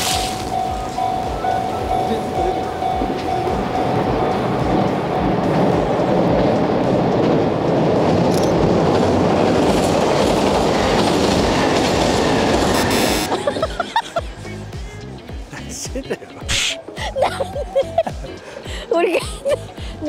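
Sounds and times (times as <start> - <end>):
train wheels on rails: 0.0 - 14.4.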